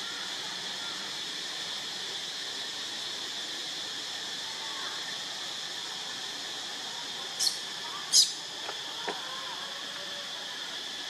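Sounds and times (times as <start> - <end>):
forest insects droning: 0.0 - 11.0.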